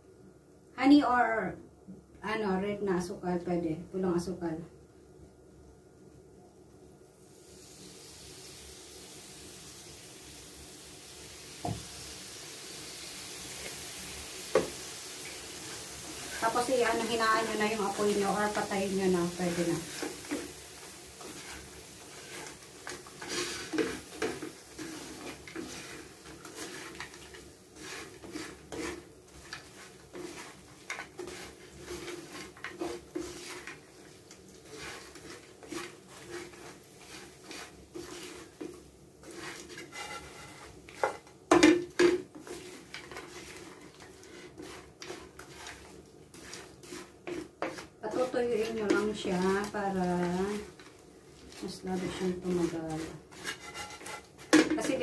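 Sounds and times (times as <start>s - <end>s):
spatula scraping a frying pan: 13.5s - 55.0s.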